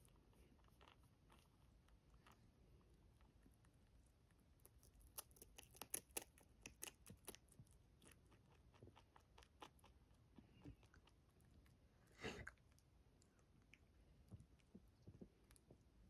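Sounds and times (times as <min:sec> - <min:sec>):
rabbit crunching dried fruit: 0:00.0 - 0:11.8.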